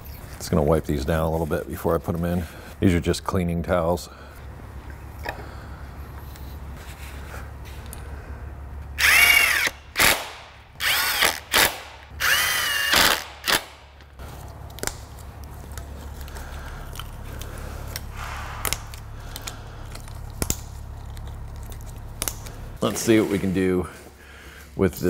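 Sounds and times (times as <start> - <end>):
cordless drill whining: 9.0 - 10.1, 10.8 - 13.6.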